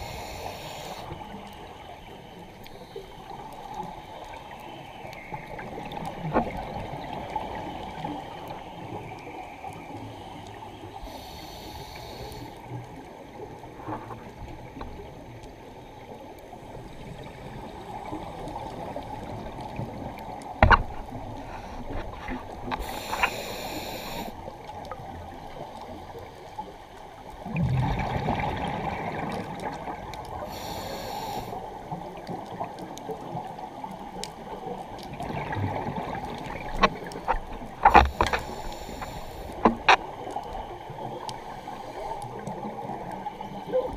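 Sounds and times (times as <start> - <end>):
scuba regulator hissing: 22.8 - 24.3
exhaled bubbles rumbling: 27.3 - 30.5, 34.7 - 38.4.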